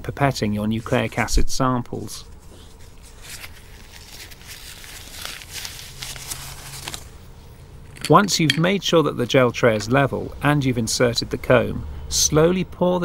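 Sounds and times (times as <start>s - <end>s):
faint rustling handling noises: 0.2s - 10.4s.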